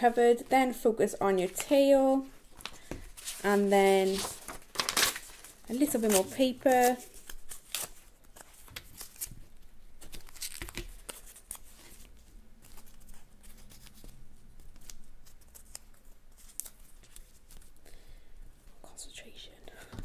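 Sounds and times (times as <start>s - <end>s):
paper tearing and crinkling: 2.6s - 9.4s, 10.0s - 14.1s.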